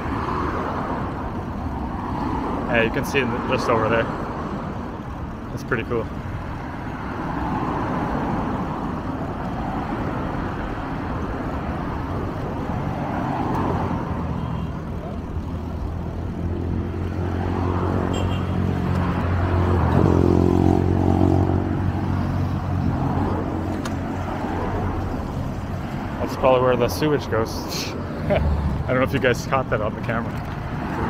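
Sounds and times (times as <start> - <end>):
road traffic rushing: 0.0 - 31.0
vehicle engine passing: 16.2 - 30.2.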